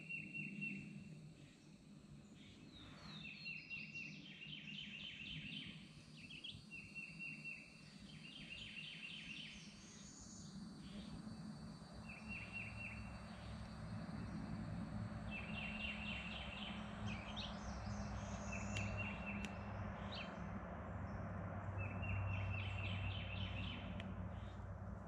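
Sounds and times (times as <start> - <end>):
steady low hum: 9.6 - 25.0.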